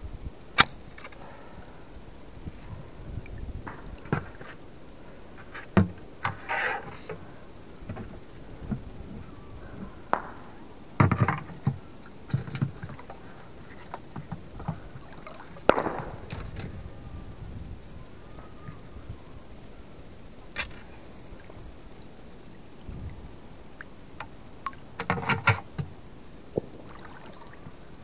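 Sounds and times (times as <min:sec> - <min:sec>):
water splashing and sloshing: 0:11.0 - 0:16.7, 0:20.6 - 0:28.0.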